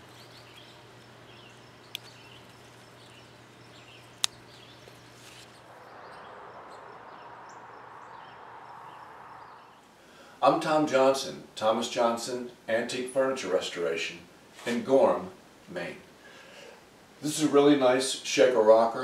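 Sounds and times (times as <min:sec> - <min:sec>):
small birds chirping: 0:00.0 - 0:09.9
steady low hum: 0:00.0 - 0:10.6
soft hiss: 0:00.0 - 0:18.9.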